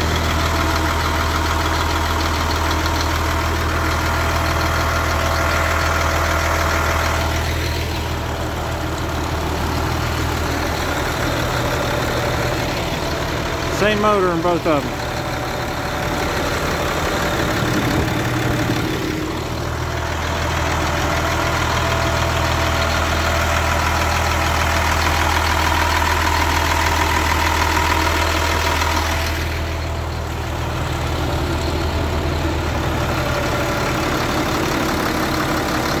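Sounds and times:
diesel bus engines idling: 0.0 - 36.0.

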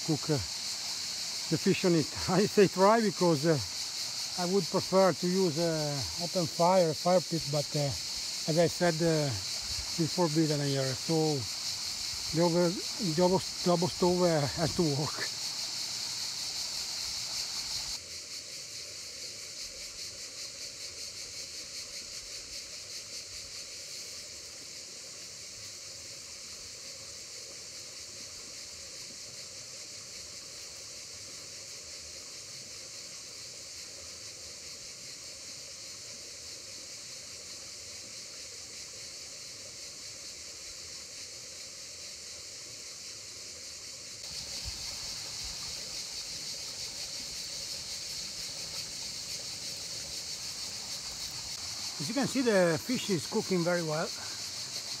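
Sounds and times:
insect chirring: 0.0 - 55.0
river water rushing: 50.4 - 55.0.

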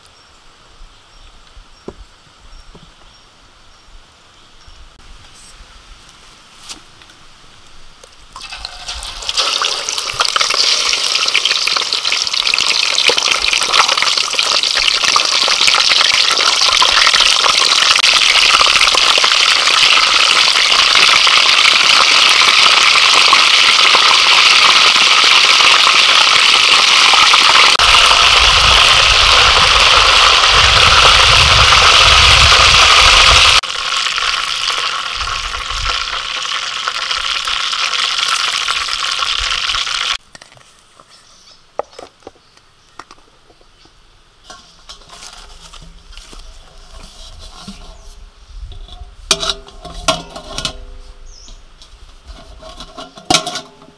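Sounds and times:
oil sizzling in a wok: 8.4 - 40.2.

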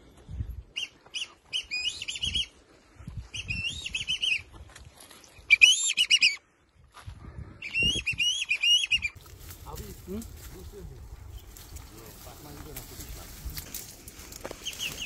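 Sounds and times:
rustling through brush: 8.6 - 15.0.

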